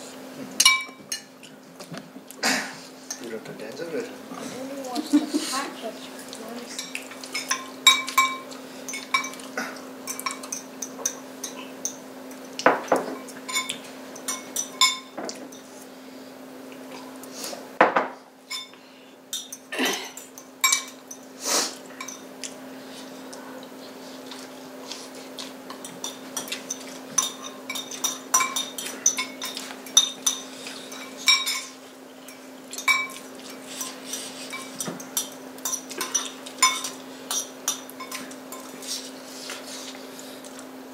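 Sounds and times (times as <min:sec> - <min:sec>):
cutlery clinking on plates: 0:00.6 - 0:01.3, 0:06.8 - 0:15.7, 0:25.4 - 0:38.8.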